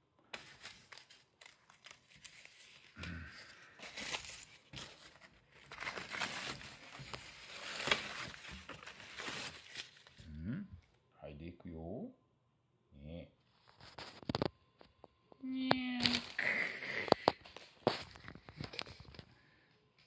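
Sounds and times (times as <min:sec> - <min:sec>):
paper tearing: 0:00.4 - 0:10.2.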